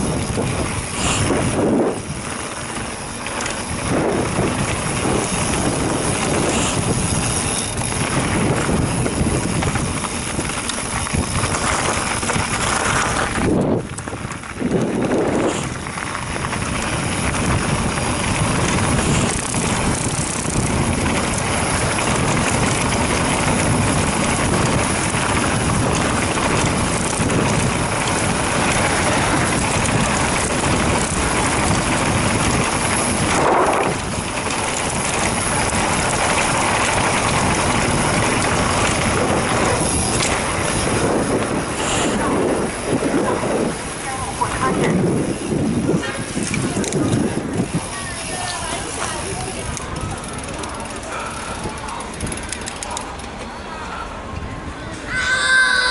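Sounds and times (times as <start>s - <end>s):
wind rushing over microphone: 0.0s - 50.5s
bike tyre and frame rattle: 0.0s - 55.9s.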